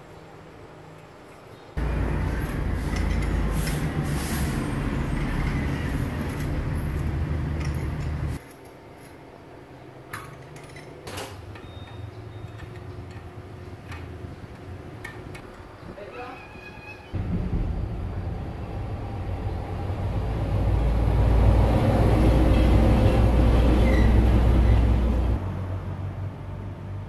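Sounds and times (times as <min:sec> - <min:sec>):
low machinery hum: 0:00.0 - 0:08.4, 0:17.0 - 0:27.0.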